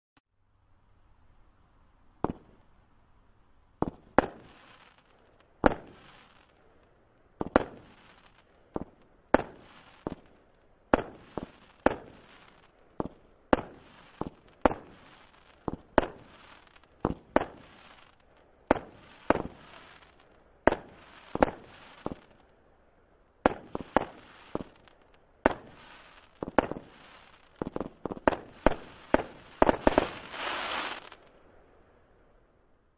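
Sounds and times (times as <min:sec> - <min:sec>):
firework bangs: 0:02.2 - 0:02.6, 0:03.8 - 0:06.5, 0:07.4 - 0:22.4, 0:23.4 - 0:31.3
firework crackling: 0:03.8 - 0:22.5, 0:23.4 - 0:31.4.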